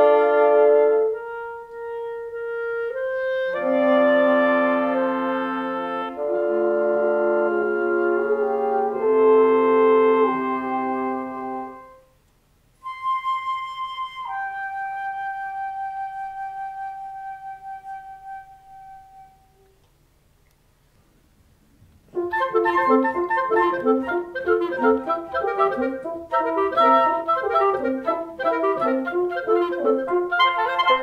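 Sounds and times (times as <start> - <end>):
woodwind ensemble playing: 0.0 - 12.2, 12.8 - 19.6, 22.1 - 31.0
solo flute note: 12.8 - 19.8.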